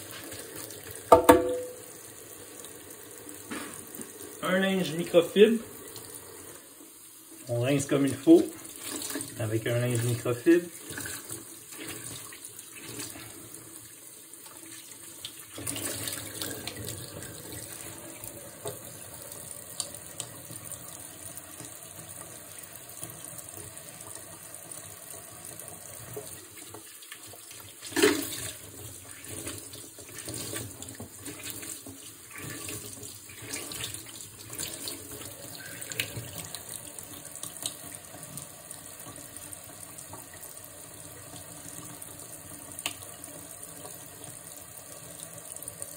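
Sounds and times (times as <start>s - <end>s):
faucet running into a steel sink: 0.0s - 6.6s, 7.5s - 45.9s
sharp knock: 1.1s - 1.8s
cloth rinsed and squeezed: 7.3s - 25.1s, 25.8s - 44.4s.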